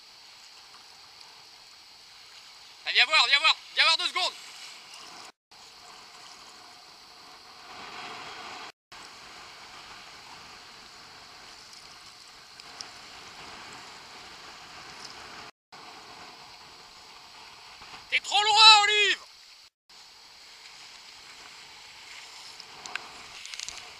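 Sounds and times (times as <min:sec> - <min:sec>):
wind: 0:00.0 - 0:23.9
choppy seawater rushing: 0:01.3 - 0:18.6.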